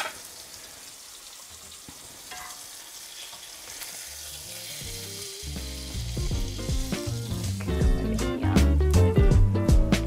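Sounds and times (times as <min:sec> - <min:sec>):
butter and oil sizzling in skillet: 0:00.0 - 0:09.1
background music with low bass: 0:05.5 - 0:10.0.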